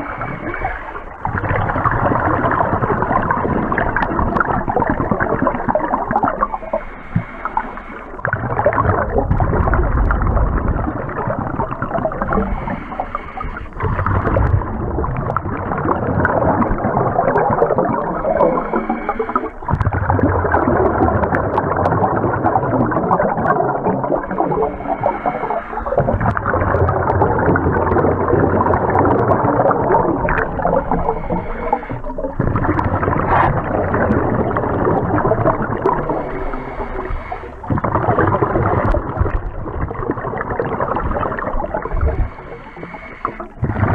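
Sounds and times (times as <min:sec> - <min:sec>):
muffled exhaled bubbles: 0:00.0 - 0:43.9
diver breathing through regulator: 0:06.4 - 0:08.3, 0:12.2 - 0:15.0, 0:15.8 - 0:19.8, 0:23.7 - 0:26.6, 0:27.5 - 0:38.2, 0:40.5 - 0:43.9.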